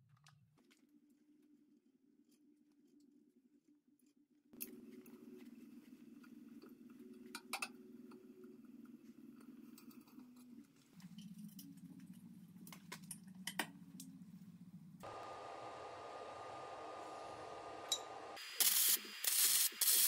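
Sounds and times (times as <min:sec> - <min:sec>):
low steady hum: 0:04.6 - 0:18.4
hiss with thin whine: 0:15.1 - 0:20.0.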